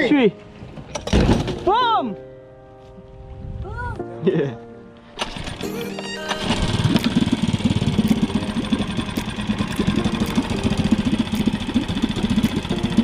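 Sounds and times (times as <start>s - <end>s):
outboard motor running: 5.2s - 13.0s.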